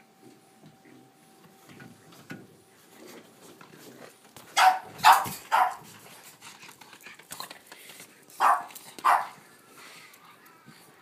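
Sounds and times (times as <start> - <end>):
dog barking: 4.6 - 5.9, 8.4 - 9.4.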